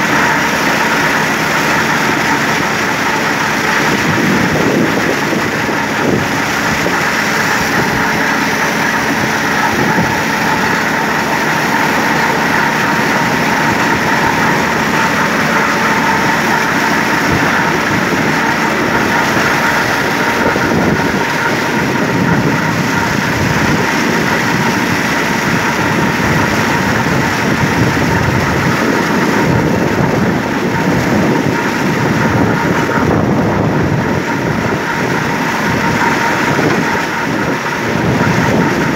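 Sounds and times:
high whine of spinning drums: 0.0 - 38.9
tractor diesel engine running: 0.0 - 38.9.

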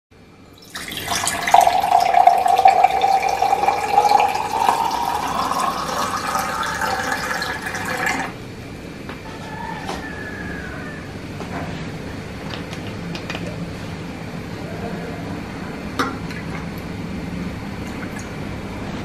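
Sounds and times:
water pouring into a glass: 0.6 - 8.4, 17.8 - 18.4.

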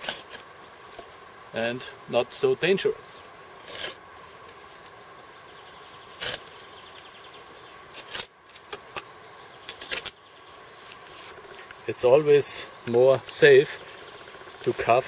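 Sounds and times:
knife shaving wood: 3.6 - 4.0, 6.2 - 6.5.

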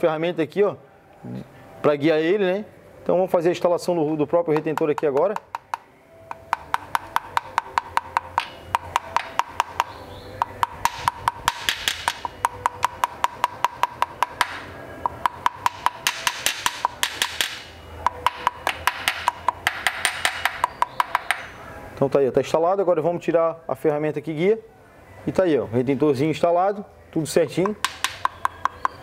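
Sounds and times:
hammer tapping on metal: 4.4 - 21.5, 27.6 - 29.0.

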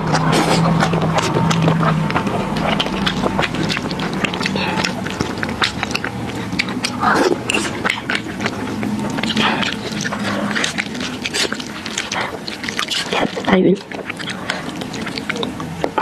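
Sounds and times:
wet chewing clicks and smacks: 0.0 - 16.0.

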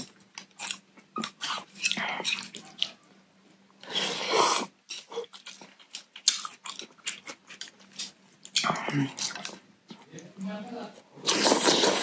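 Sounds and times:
loud slurp: 11.2 - 12.0
wet mouth sounds eating noodles: 11.2 - 12.0.

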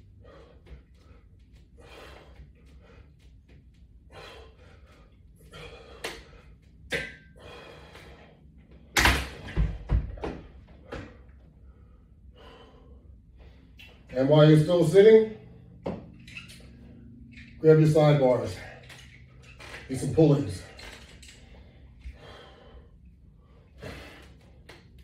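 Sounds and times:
person breathing: 0.0 - 3.2, 4.0 - 6.6, 7.4 - 8.5, 11.4 - 13.8, 21.4 - 24.6.

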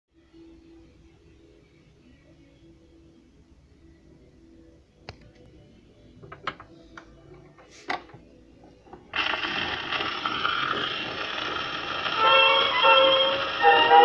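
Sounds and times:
orchestra playing: 12.2 - 14.0.

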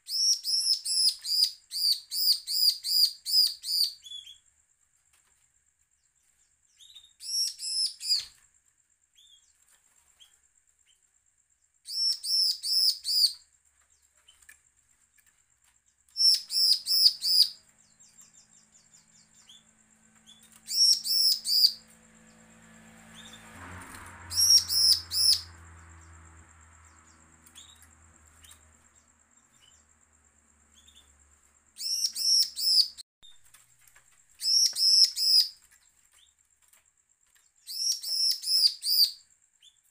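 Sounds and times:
bird singing high sharp notes: 16.2 - 19.7, 20.3 - 21.9, 24.3 - 26.3.

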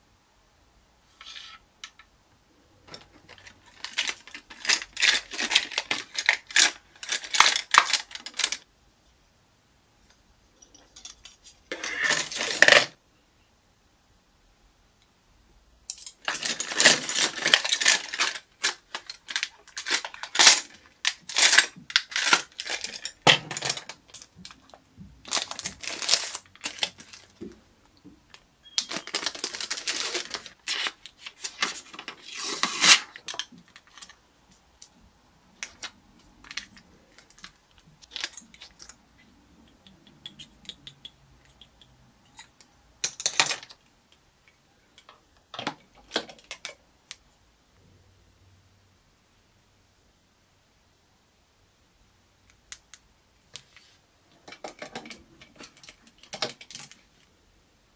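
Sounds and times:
plastic packaging crinkling: 3.3 - 8.7, 16.2 - 27.5, 28.7 - 34.2, 35.6 - 39.0.

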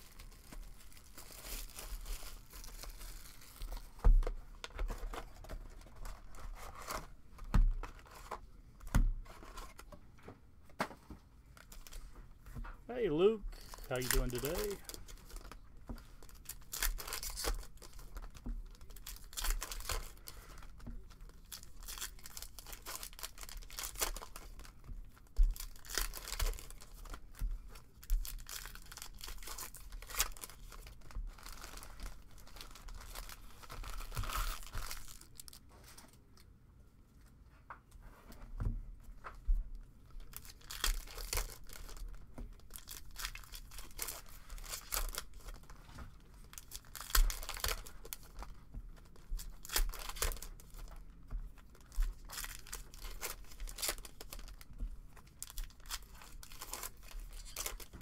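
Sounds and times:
foil card packs being torn open: 0.0 - 4.0, 13.1 - 15.6, 16.2 - 20.5, 21.2 - 24.7, 25.5 - 27.2, 28.0 - 35.6, 40.2 - 45.7, 46.5 - 48.5, 49.1 - 51.0, 51.7 - 58.0
foil wrappers crinkling: 0.0 - 4.0, 12.9 - 36.1, 40.1 - 58.0.

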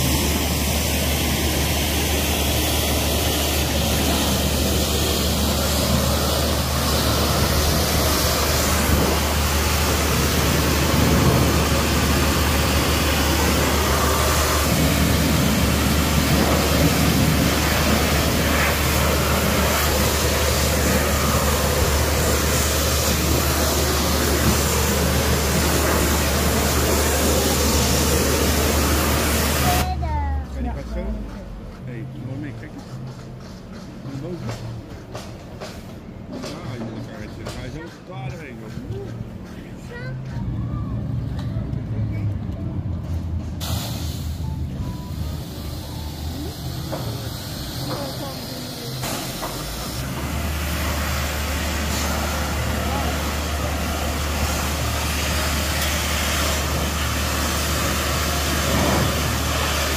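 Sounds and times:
pressure washer hum: 0.0 - 30.0, 43.6 - 59.9
water jets spraying concrete: 0.0 - 30.2, 43.6 - 59.9.

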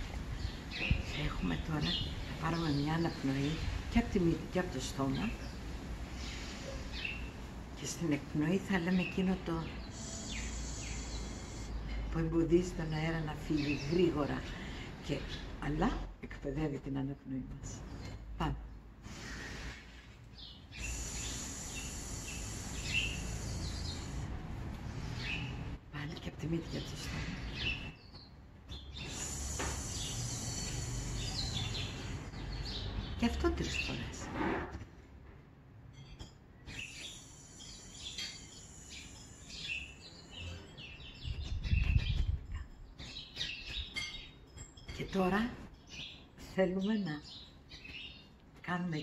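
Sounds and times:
faint birds chirping: 0.0 - 34.2, 35.9 - 49.0
long hissed exhale: 9.9 - 12.1, 19.0 - 20.1, 20.7 - 25.6, 29.0 - 32.4, 36.9 - 40.1.

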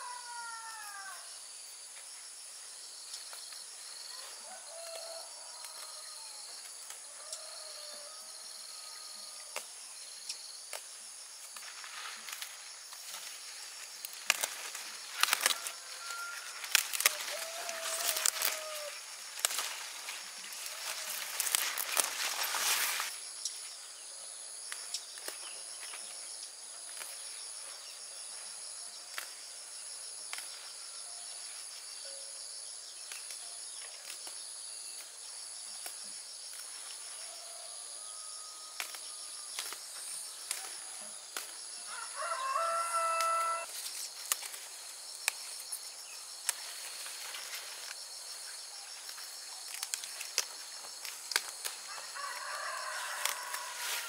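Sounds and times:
insects droning: 0.0 - 54.0
vegetable stems snapping: 10.7 - 13.2, 14.0 - 15.7, 16.6 - 23.1, 29.1 - 29.4, 34.0 - 34.4, 38.8 - 41.6, 43.2 - 45.6, 46.4 - 46.8, 49.1 - 51.9, 53.2 - 53.7.

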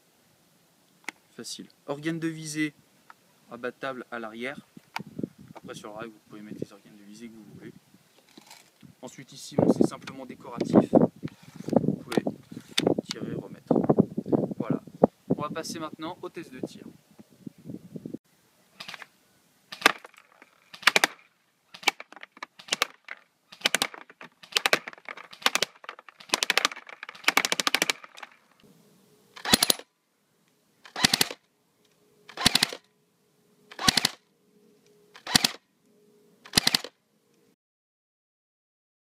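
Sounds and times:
airsoft rifle firing bursts: 20.7 - 21.2, 23.6 - 28.1, 29.4 - 29.8, 30.9 - 31.4, 32.3 - 32.8, 33.7 - 34.2, 35.2 - 35.6, 36.5 - 36.9.

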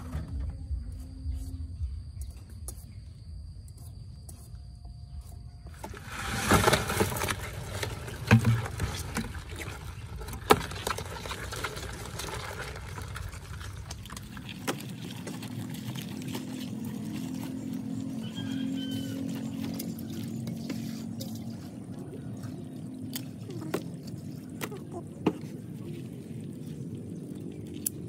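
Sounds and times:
crabs splashing in water: 5.8 - 28.0.

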